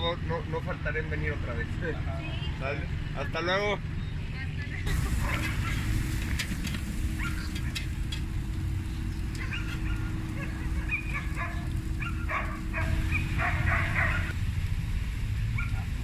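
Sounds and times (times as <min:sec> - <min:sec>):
steady low rumble: 0:04.7 - 0:16.0
dog barking: 0:05.2 - 0:05.9, 0:07.2 - 0:07.6, 0:09.4 - 0:14.3, 0:15.6 - 0:15.9.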